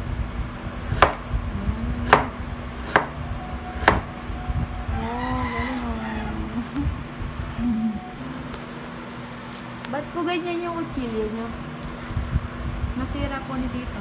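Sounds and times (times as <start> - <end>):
knife chopping carrot on board: 0.9 - 1.2, 2.0 - 3.1, 3.8 - 4.1.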